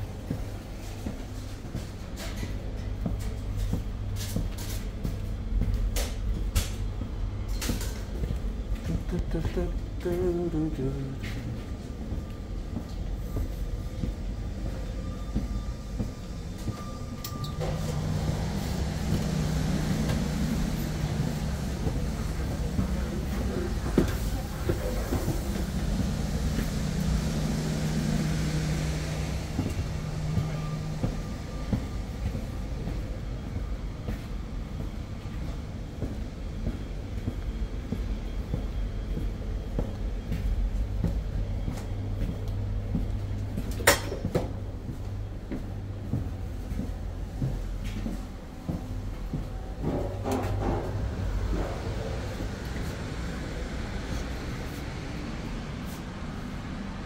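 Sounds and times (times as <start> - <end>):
train carriage hum and rumble: 0.0 - 57.0.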